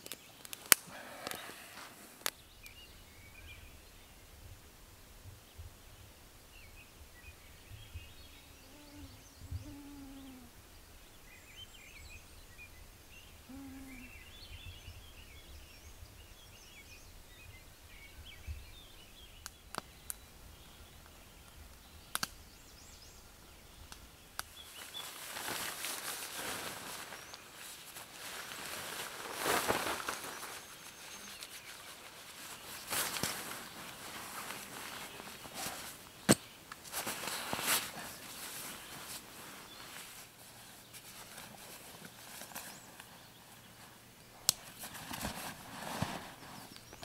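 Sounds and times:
faint bird chirps: 0:05.4 - 0:27.7.

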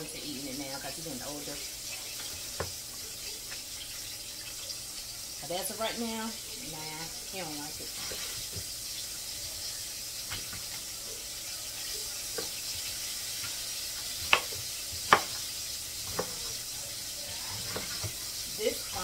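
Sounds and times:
fish sizzling in deep fryer: 0:00.0 - 0:19.0
knife cutting on wooden board: 0:14.2 - 0:15.4, 0:16.0 - 0:16.6.

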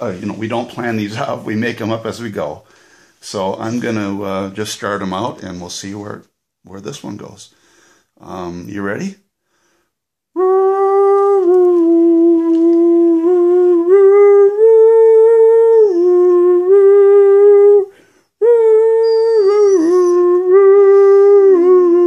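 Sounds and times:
man howl-like singing: 0:10.4 - 0:22.0
dog howling: 0:10.5 - 0:22.0.

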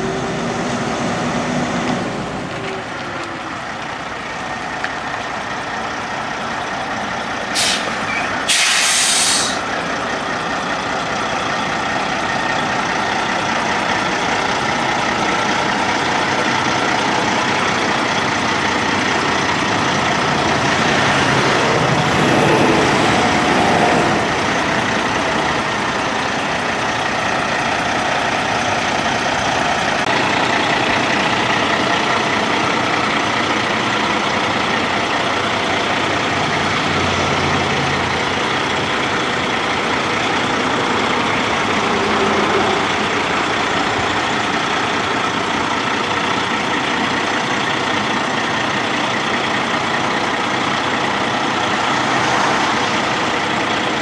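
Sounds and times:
diesel truck engine running: 0:00.0 - 0:54.0
air brake hissing: 0:07.5 - 0:09.7.

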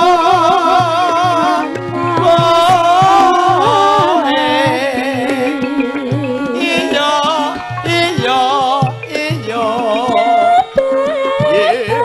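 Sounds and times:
gamelan accompaniment: 0:00.0 - 0:12.0
repeated drum strokes: 0:00.0 - 0:12.0
woman singing with vibrato: 0:00.0 - 0:12.0.

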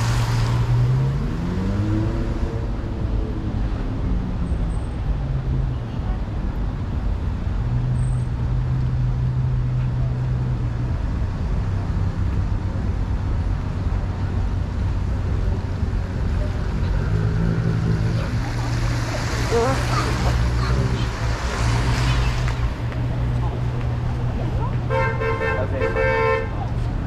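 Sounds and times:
tyres hissing on wet road: 0:00.0 - 0:02.0, 0:17.4 - 0:23.3
car engine hum: 0:00.0 - 0:27.0.

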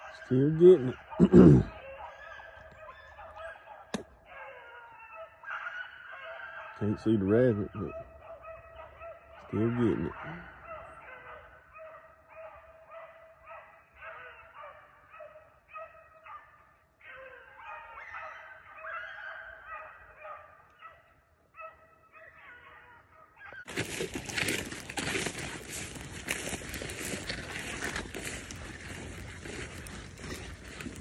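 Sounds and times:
hounds baying: 0:00.0 - 0:31.0
rustle of dry grass: 0:23.7 - 0:31.0.

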